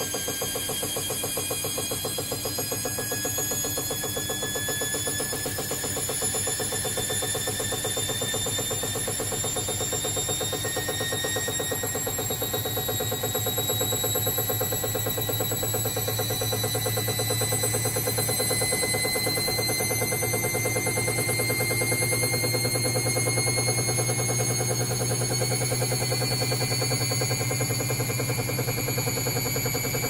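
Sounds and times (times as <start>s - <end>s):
washer dryer motor whining: 0.0s - 30.0s.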